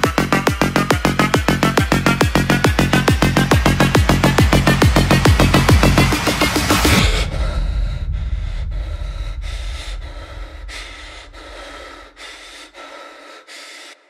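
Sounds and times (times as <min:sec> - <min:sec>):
low rumble: 0:00.0 - 0:12.9
rapid heavy breathing: 0:06.8 - 0:14.0.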